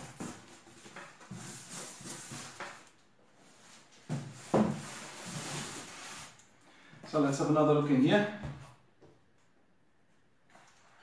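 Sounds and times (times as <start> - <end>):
cardboard rustling and scraping: 0.0 - 6.4.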